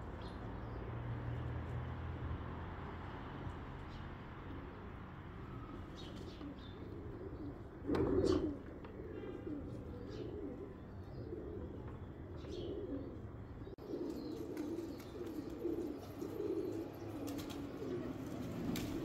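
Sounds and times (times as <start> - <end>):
pigeons cooing: 5.9 - 19.0.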